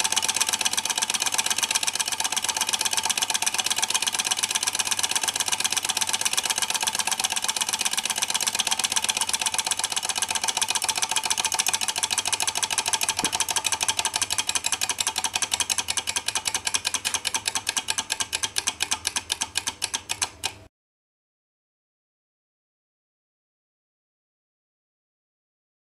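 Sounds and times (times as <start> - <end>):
model engine clicking clatter: 0.0 - 20.6.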